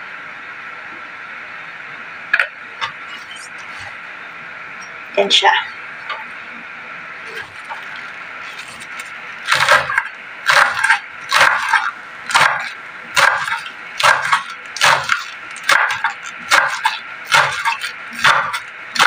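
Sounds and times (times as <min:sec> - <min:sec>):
knife chopping on wooden board: 0:09.5 - 0:19.0.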